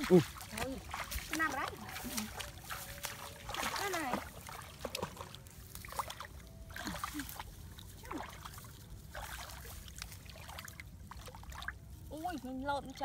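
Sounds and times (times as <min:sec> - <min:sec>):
shallow water splashing: 0:00.0 - 0:13.0.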